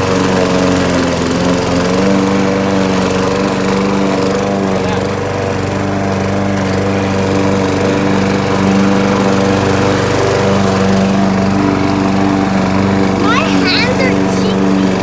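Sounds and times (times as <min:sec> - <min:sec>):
lawn mower engine running: 0:00.0 - 0:15.0.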